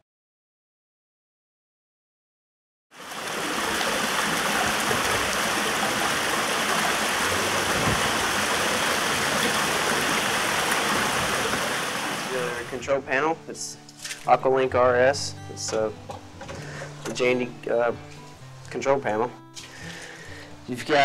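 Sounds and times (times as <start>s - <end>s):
waterfall splashing into pool: 3.0s - 12.8s.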